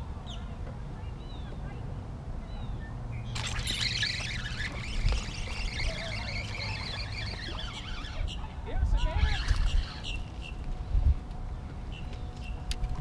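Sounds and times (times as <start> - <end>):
wind buffeting microphone: 0.0 - 13.0
fishing reel whirring: 3.3 - 8.4.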